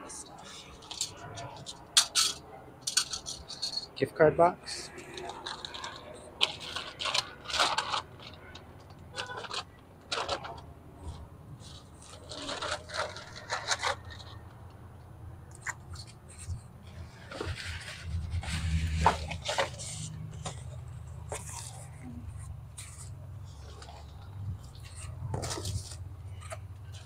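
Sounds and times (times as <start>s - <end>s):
cardboard and bags rustling: 5.2s - 14.4s, 15.9s - 27.0s.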